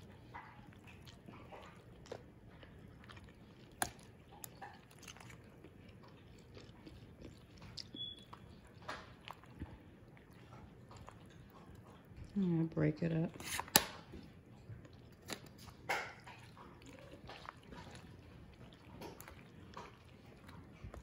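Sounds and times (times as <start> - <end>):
metal spoon stirring in foil pan: 13.0 - 13.8.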